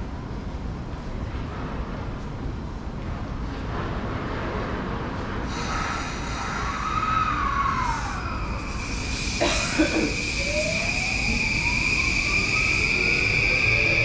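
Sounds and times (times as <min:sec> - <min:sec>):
electric train rumbling: 0:00.0 - 0:14.0
electronic motor whine: 0:08.0 - 0:14.0.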